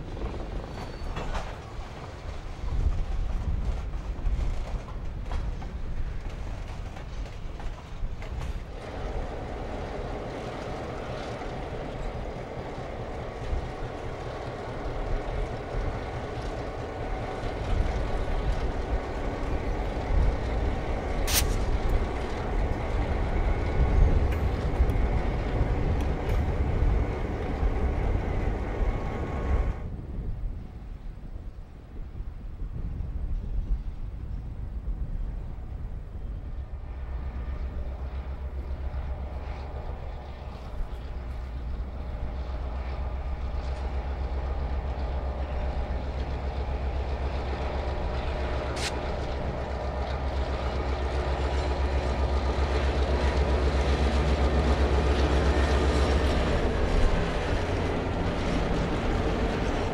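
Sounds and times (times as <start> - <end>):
diesel locomotive drone: 0.0 - 59.9
sharp click: 21.3 - 21.6.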